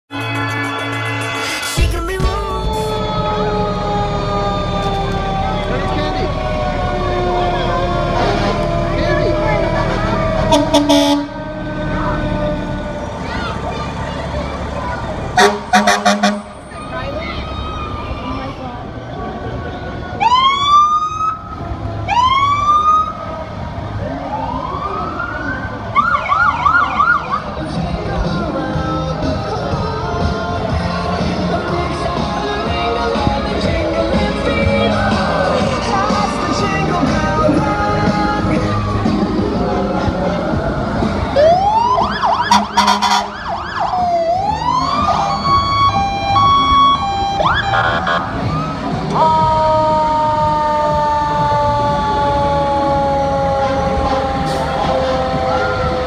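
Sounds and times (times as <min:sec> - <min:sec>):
fire truck sirens: 0:00.1 - 0:56.0
low vehicle rumble: 0:00.1 - 0:56.0.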